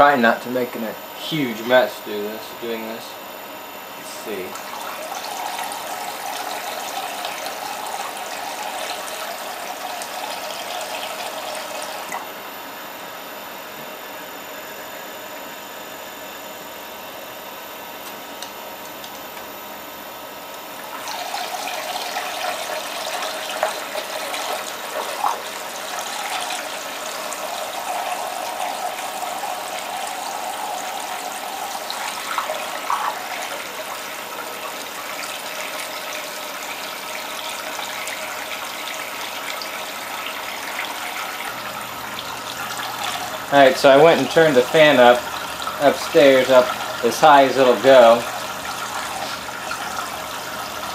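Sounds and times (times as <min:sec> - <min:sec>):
water pouring and splashing: 0:20.9 - 0:50.9.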